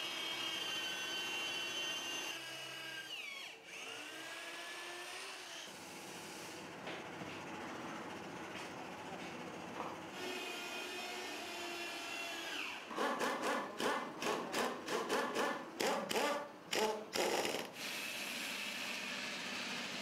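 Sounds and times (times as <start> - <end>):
angle grinder cutting rubber: 12.6 - 20.0.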